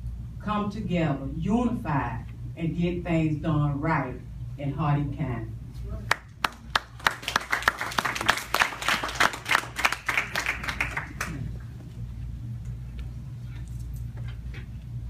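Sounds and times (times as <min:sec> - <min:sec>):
small audience applauding: 0:06.1 - 0:11.6.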